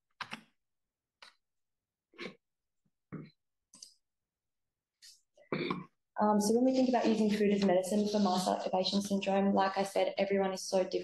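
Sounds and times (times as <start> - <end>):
faint breaths and throat noises: 5.4 - 6.0.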